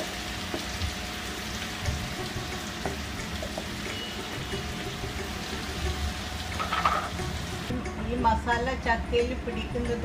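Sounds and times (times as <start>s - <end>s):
food sizzling in a pan: 0.0s - 7.7s.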